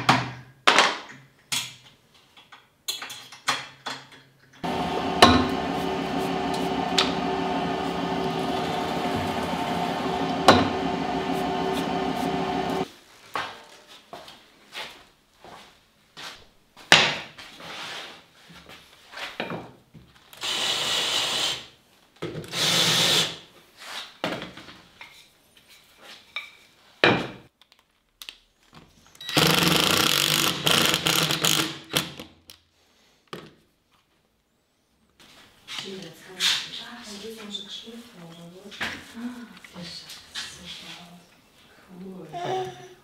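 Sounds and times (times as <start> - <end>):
power sander running: 4.6 - 12.9
cordless drill boring into wood: 29.2 - 32.2.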